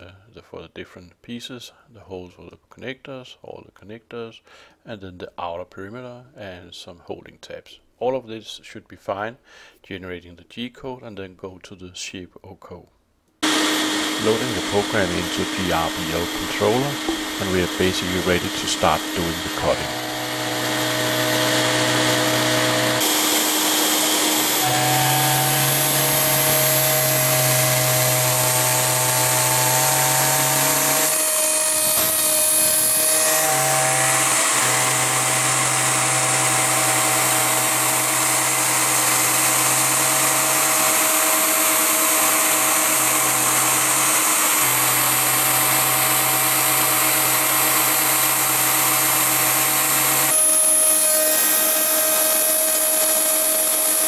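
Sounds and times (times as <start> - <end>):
spindle high whine: 13.4 - 31.2.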